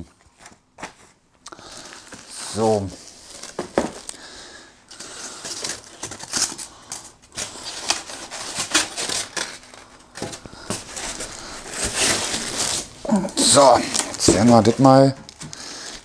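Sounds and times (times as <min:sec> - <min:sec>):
plastic wrap crinkling: 0:00.3 - 0:04.3, 0:04.9 - 0:16.0
polystyrene packing rubbing: 0:07.3 - 0:16.0.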